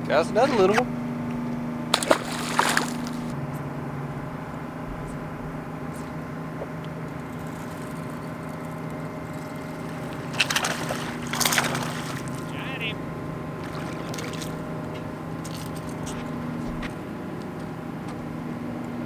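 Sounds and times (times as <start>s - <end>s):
electric trolling motor humming: 0.0s - 19.0s
fish splashing at the surface: 1.9s - 3.3s, 7.1s - 12.5s, 13.6s - 14.6s.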